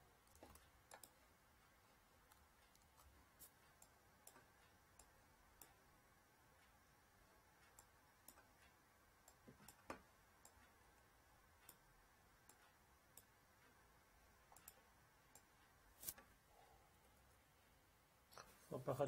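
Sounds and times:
computer mouse clicks: 0.2 - 1.2, 14.5 - 16.3.

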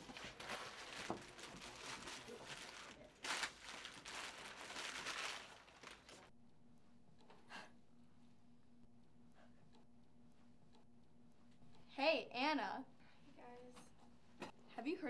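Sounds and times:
papers and plastic rustling: 0.0 - 6.3.

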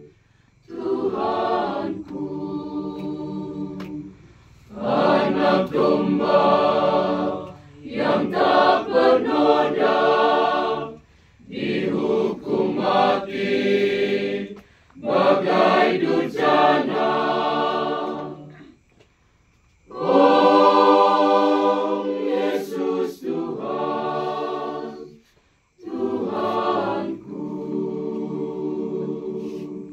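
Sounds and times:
choir singing a hymn: 0.0 - 18.9, 19.8 - 29.9.

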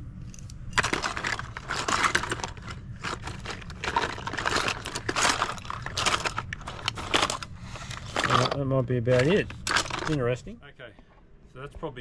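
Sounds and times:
rustling of packaging: 0.3 - 10.5.

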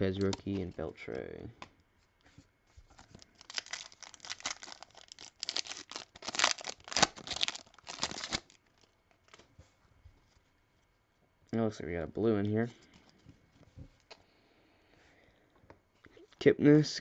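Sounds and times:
foil wrapper tearing and crinkling: 3.0 - 8.9.

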